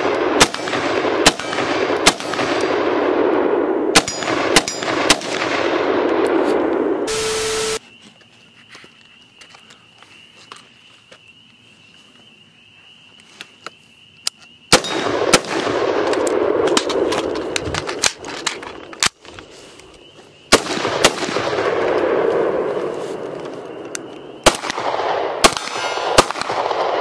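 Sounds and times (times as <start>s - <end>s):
rapid rifle shots: 0.0s - 3.3s, 3.9s - 6.1s.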